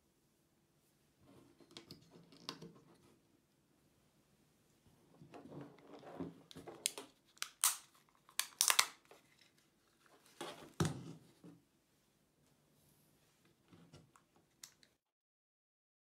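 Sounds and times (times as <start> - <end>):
sharp plastic clicks and snaps: 6.8 - 9.1.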